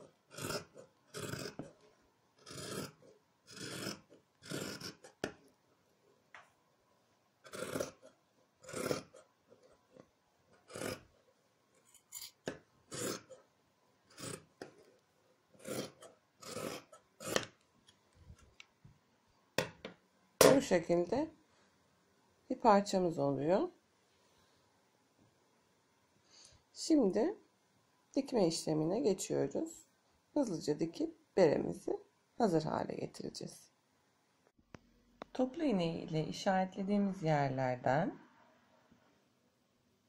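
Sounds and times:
scissors snipping fabric: 0:00.0 - 0:01.8, 0:02.4 - 0:05.4, 0:07.5 - 0:11.1, 0:12.0 - 0:13.4, 0:14.1 - 0:14.9, 0:15.6 - 0:17.6.

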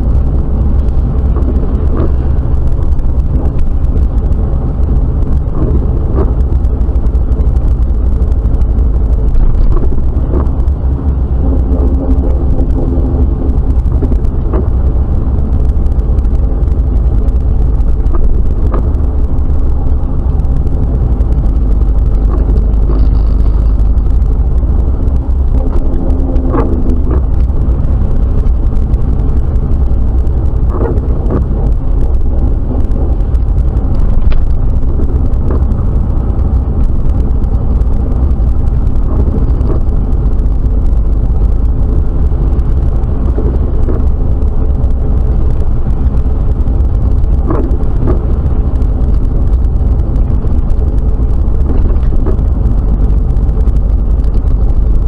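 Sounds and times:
engine and road rumble: 0:00.0 - 0:55.0
light ticks: 0:11.5 - 0:55.0.

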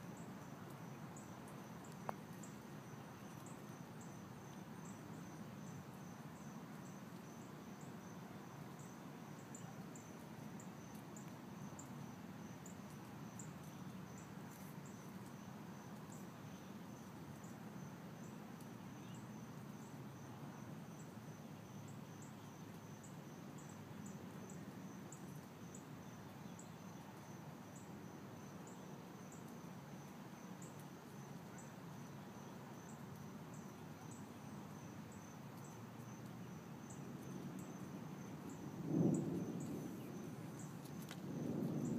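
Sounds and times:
insects trilling: 0:21.6 - 0:41.9
sharp insect chirps: 0:30.0 - 0:41.9.

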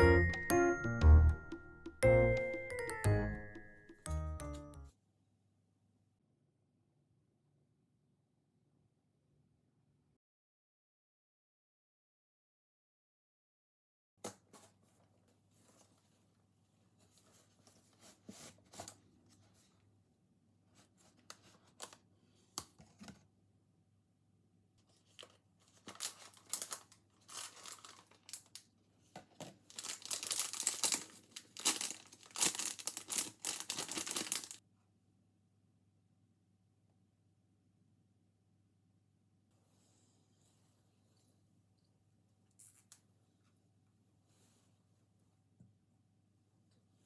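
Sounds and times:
wrapper crinkling and tearing: 0:25.1 - 0:28.6, 0:29.7 - 0:34.6.

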